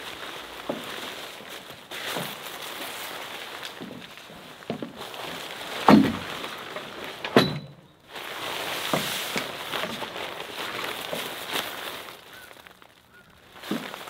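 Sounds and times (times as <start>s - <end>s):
stiff tent fabric rustling: 0.0s - 7.4s, 8.0s - 14.0s.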